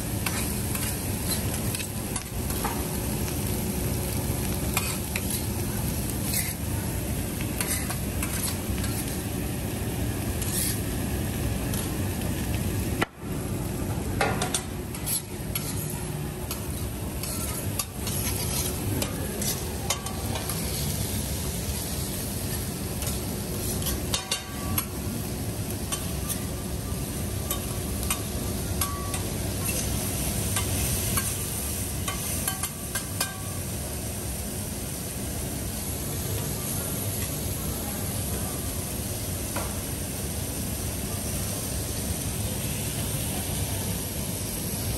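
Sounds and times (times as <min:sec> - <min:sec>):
food sizzling on griddle: 0:00.0 - 0:44.9
metal spatulas scraping and clicking: 0:00.2 - 0:02.7, 0:06.2 - 0:06.6, 0:07.6 - 0:09.2, 0:10.4 - 0:10.8, 0:14.4 - 0:20.8, 0:22.5 - 0:24.9, 0:27.5 - 0:29.9, 0:32.1 - 0:33.4.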